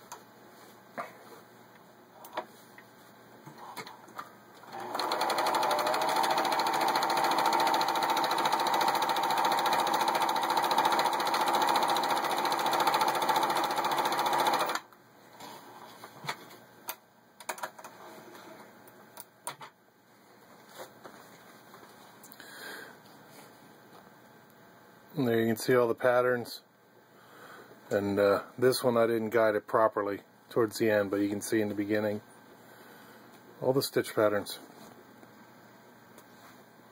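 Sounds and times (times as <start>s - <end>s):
sewing machine running: 4.6s - 14.9s.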